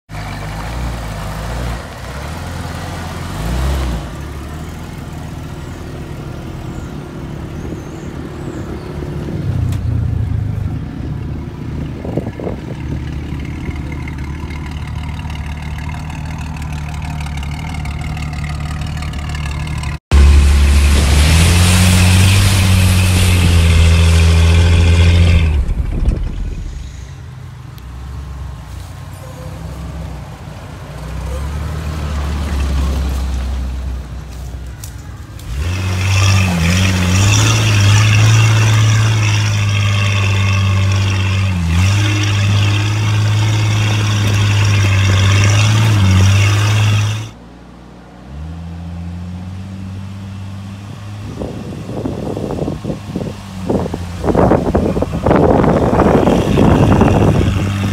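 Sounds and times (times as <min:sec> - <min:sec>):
car engine revving: 0:12.0 - 0:27.1, 0:35.4 - 0:47.4, 0:48.2 - 0:57.9.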